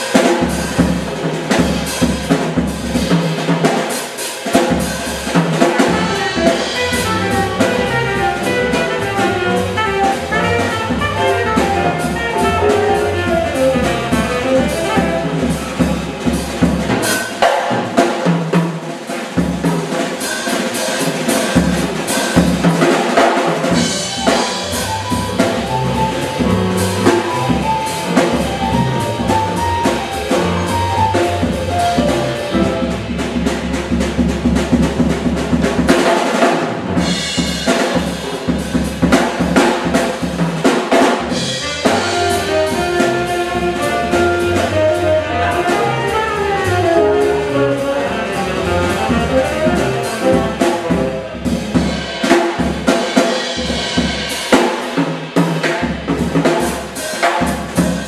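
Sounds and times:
drum kit playing: 0.0 - 58.0
live jazz music: 0.0 - 58.0
walking bass line: 6.0 - 15.4, 23.8 - 35.4, 41.6 - 51.4.

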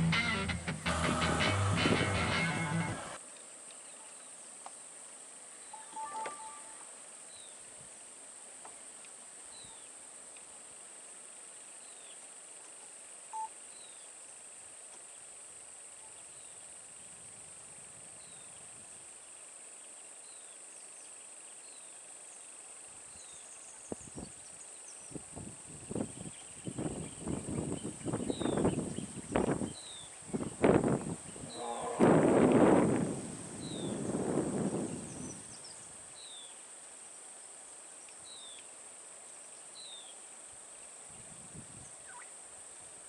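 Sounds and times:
steady high hiss: 0.0 - 43.0
brief beeps: 5.7 - 6.9.

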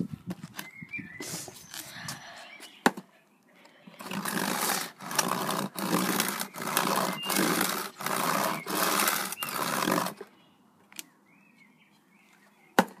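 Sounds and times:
cardboard box scraping on concrete: 4.0 - 10.3.

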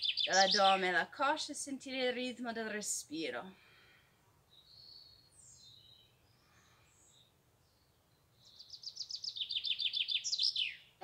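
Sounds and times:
small bird singing: 0.0 - 1.0, 4.5 - 11.0.

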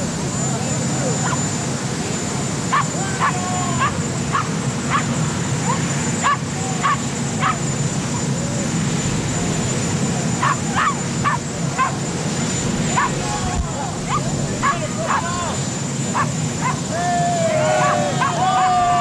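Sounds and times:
dog yipping high barks: 2.7 - 7.6, 10.4 - 12.0, 14.1 - 15.2, 16.1 - 16.8.

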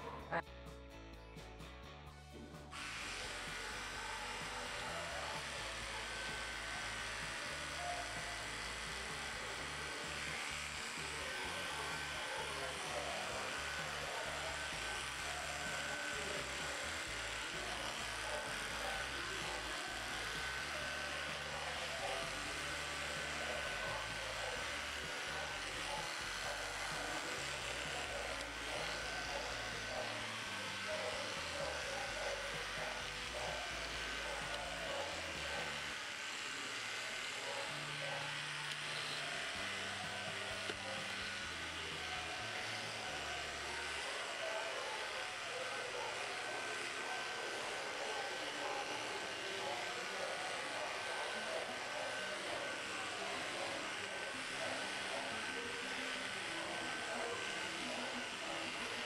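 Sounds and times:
electric clippers whining: 2.3 - 59.0.

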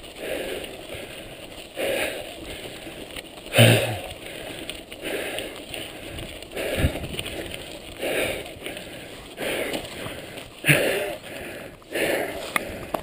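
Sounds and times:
person breathing hard: 0.0 - 13.0
tyre and trail noise: 0.0 - 13.0.

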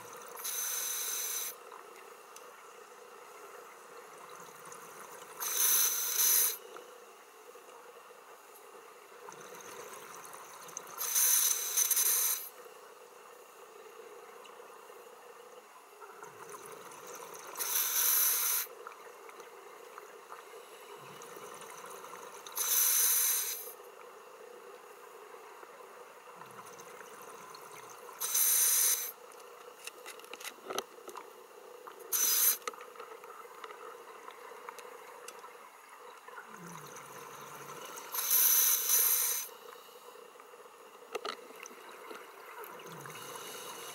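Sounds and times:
regulator inhalations: 0.4 - 1.6, 5.4 - 6.6, 11.0 - 12.5, 17.6 - 18.7, 22.6 - 23.8, 28.2 - 29.2, 32.1 - 32.6, 38.1 - 40.2
exhaled bubbles underwater: 33.3 - 38.2, 41.4 - 43.9.

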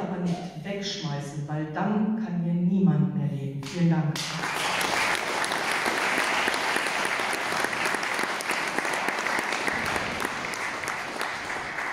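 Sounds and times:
audience applauding: 4.2 - 11.9.

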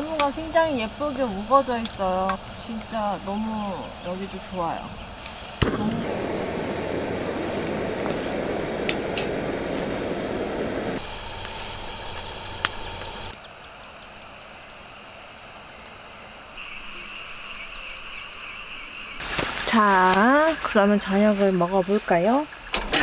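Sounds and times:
woodland ambience: 0.0 - 23.0
campfire crackling: 5.2 - 13.4
fire pop: 5.6 - 13.3.

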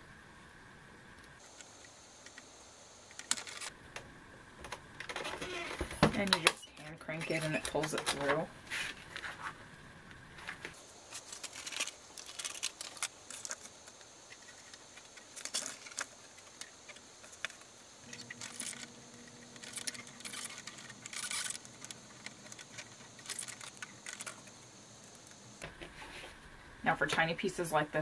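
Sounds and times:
paper rustling: 3.2 - 3.7, 7.1 - 9.6, 10.4 - 26.3.

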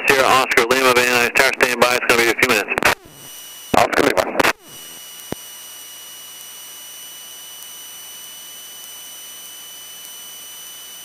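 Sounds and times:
intercom audio hiss: 0.0 - 5.1.

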